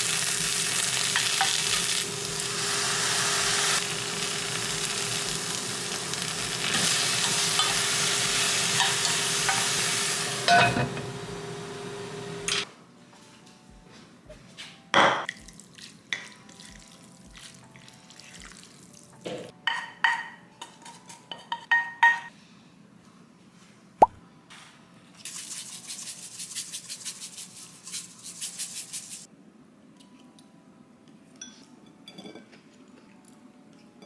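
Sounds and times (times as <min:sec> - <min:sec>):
soft background music: 0:12.6 - 0:34.0
seed shaker rattling: 0:25.2 - 0:29.3.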